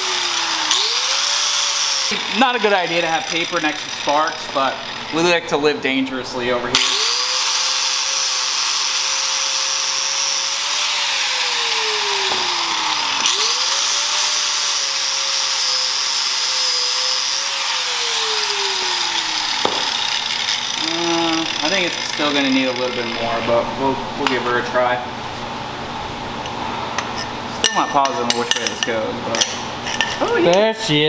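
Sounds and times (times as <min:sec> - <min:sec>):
angle grinder grinding steel: 0:00.0 - 0:05.4, 0:06.8 - 0:23.5.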